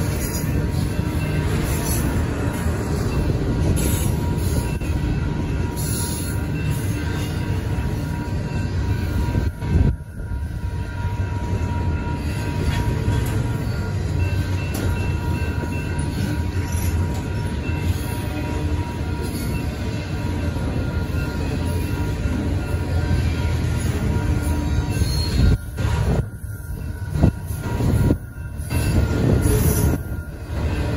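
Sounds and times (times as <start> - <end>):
freight train wheels rumbling: 0.0 - 30.9
high wheel squeal: 21.0 - 30.9.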